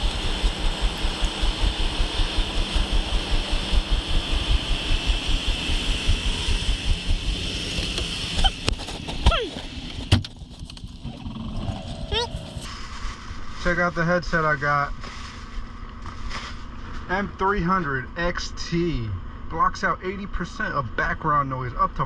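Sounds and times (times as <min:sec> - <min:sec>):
constant hiss: 0:12.4 - 0:22.0.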